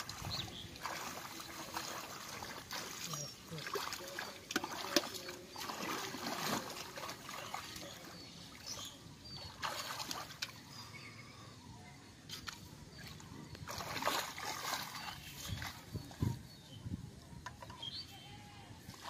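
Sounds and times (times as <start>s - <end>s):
hands splashing in muddy water: 0.0s - 8.8s, 9.4s - 10.6s, 12.4s - 16.2s.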